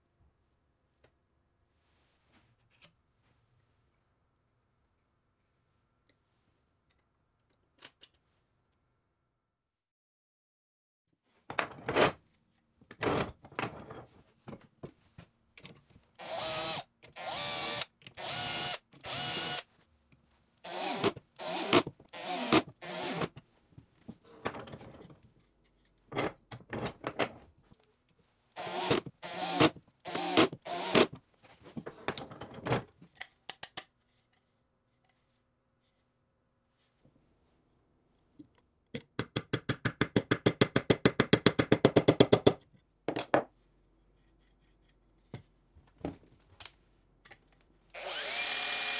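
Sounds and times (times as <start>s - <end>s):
drill-driver driving screws: 16.2s - 19.7s, 20.6s - 23.3s, 28.6s - 31.1s, 48.0s - 48.9s.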